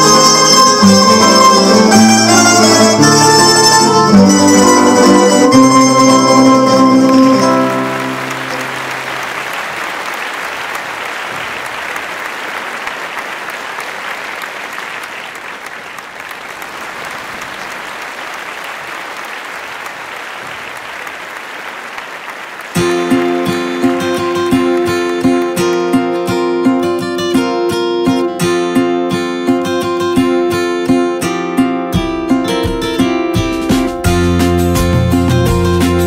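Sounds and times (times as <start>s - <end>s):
strummed plucked-string music: 0.0s - 9.2s, 22.8s - 36.0s
plucked-string ensemble chord: 0.0s - 9.3s
applause: 5.8s - 26.4s.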